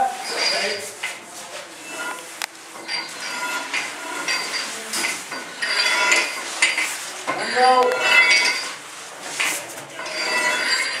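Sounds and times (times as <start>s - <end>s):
metal tools clinking on concrete: 0.2s - 0.9s, 2.0s - 8.8s, 10.0s - 11.0s.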